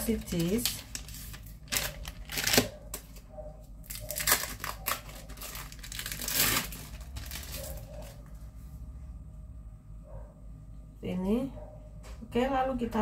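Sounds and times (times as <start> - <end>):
plastic wrapping crinkling and tearing: 0.0 - 8.2.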